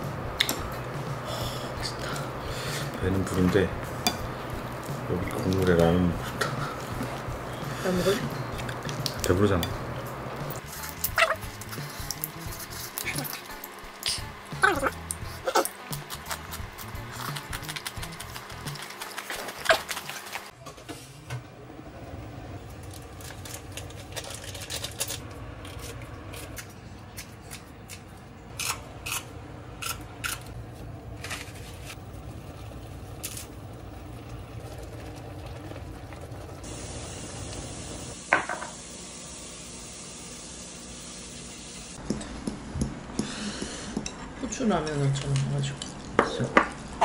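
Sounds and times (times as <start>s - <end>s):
broth bubbling in a pot: 32.0s - 41.8s.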